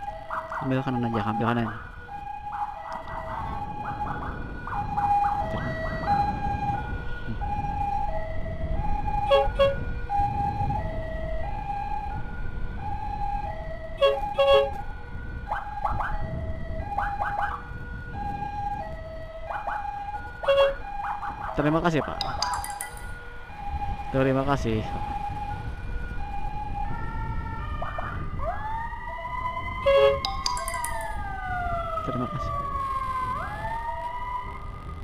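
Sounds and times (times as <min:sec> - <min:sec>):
chirping siren tone: 0:00.0 - 0:06.9, 0:08.9 - 0:09.9, 0:19.2 - 0:23.2, 0:29.2 - 0:33.8
two-tone emergency siren: 0:00.0 - 0:35.0
wind rumble: 0:00.0 - 0:35.0.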